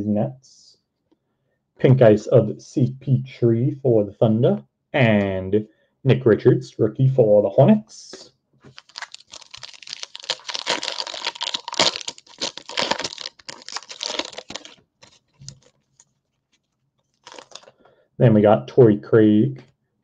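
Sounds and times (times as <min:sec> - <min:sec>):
foil wrapper crinkling and tearing: 0:08.7 - 0:17.7.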